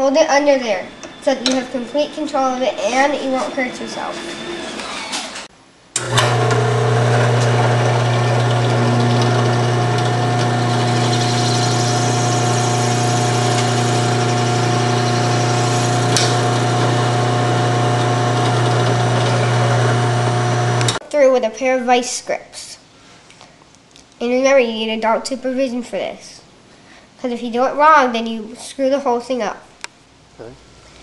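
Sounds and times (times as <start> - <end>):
drill press motor humming: 4.4 - 21.0.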